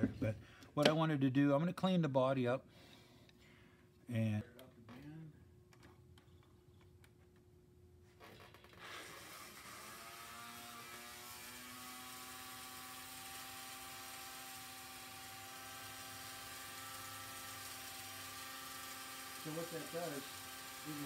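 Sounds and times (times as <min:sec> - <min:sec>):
small electric motor whine: 0:08.2 - 0:21.0.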